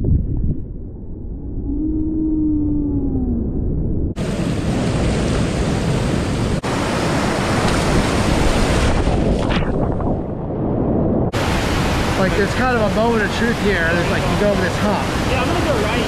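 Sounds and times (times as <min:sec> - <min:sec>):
whitewater rushing: 0:11.4 - 0:16.0.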